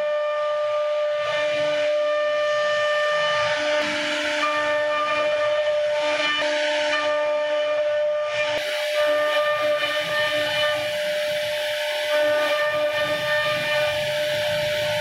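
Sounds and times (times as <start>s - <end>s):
router spindle whining: 8.0s - 15.0s
hiss of cutting wood: 8.6s - 15.0s.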